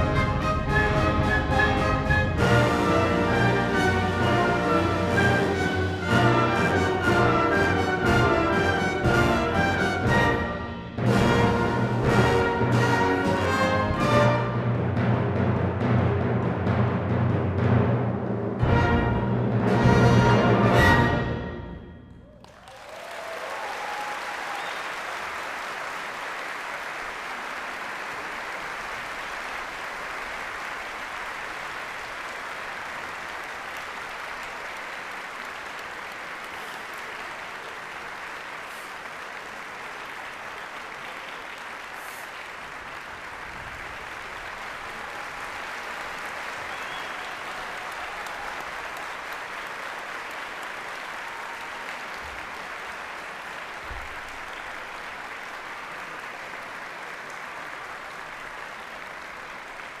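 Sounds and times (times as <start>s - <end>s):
audience applauding: 0.0s - 14.7s, 22.2s - 60.0s.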